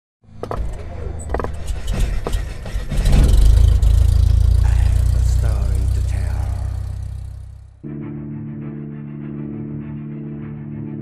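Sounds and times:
deep low drone: 0:00.8 - 0:07.8
sharp crackling hits: 0:01.5 - 0:07.7.

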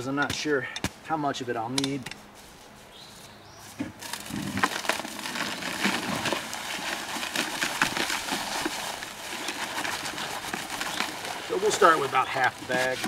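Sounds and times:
paper sack crackling and rustling: 0:03.8 - 0:13.0
powder pouring into plastic bucket: 0:04.0 - 0:13.0.

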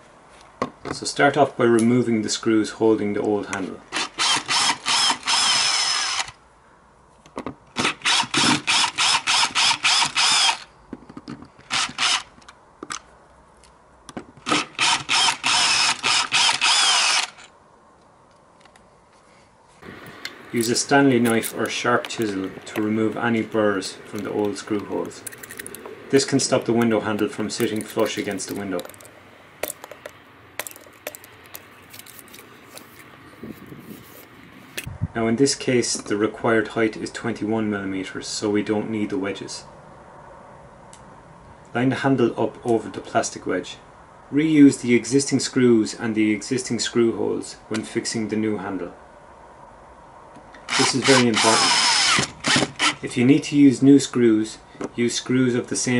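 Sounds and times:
cordless drill backing out screws: 0:20.0 - 0:33.0, 0:50.7 - 0:53.0
sharp clicks: 0:20.0 - 0:33.1
blade scraping plastic: 0:20.1 - 0:34.9.

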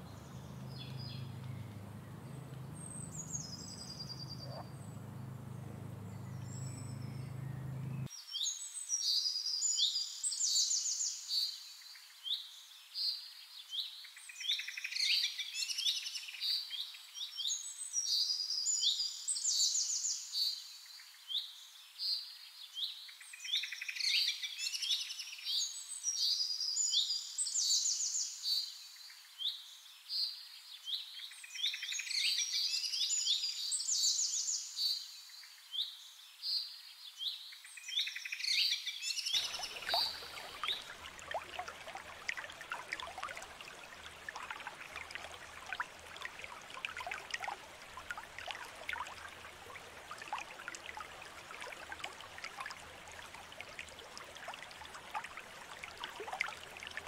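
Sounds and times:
low hum: 0:00.0 - 0:08.1
small birds chirping: 0:00.0 - 0:08.1, 0:39.2 - 0:57.0
faint ticks: 0:00.6 - 0:06.1.

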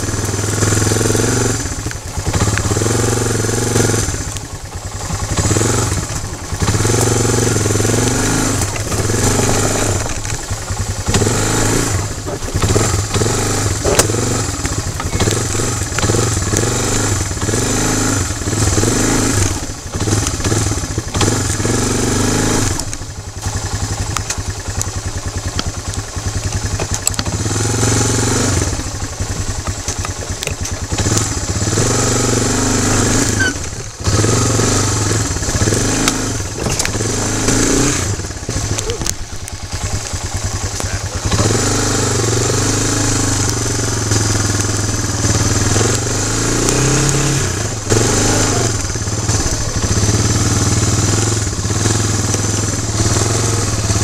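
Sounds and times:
quad bike engine running: 0:00.0 - 0:54.0
knocks and rattles of bouncing: 0:04.4 - 0:16.7, 0:35.2 - 0:41.6.

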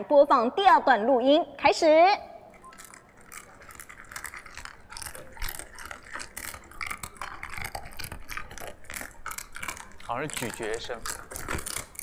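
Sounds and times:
pet crunching dry kibble: 0:02.5 - 0:12.0.

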